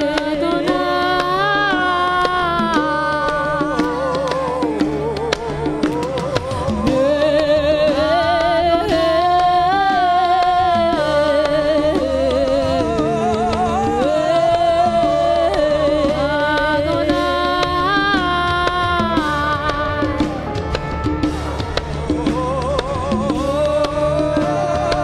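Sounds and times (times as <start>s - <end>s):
person singing long notes: 0.0s - 25.0s
worship band playing: 0.0s - 25.0s.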